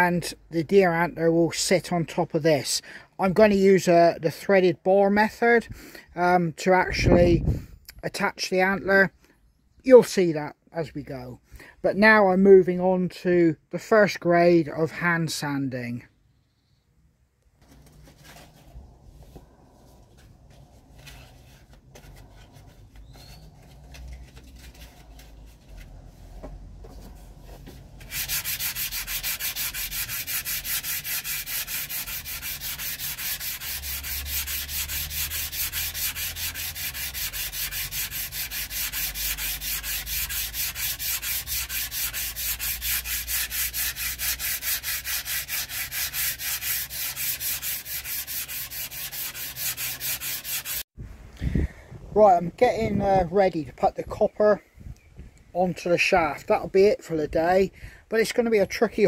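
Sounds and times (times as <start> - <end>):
sandpaper rasping on wood: 28.0 - 50.9.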